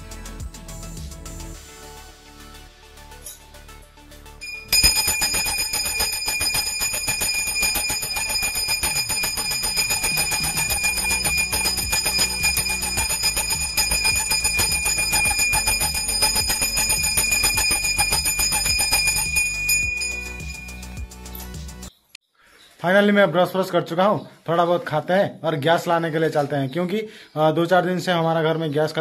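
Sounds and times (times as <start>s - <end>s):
brass hand bell ringing rapidly: 4.4s - 21.8s.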